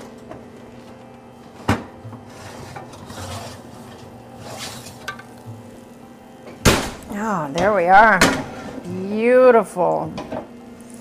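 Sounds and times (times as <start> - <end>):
metal scraping and rubbing: 2.3 - 5.1.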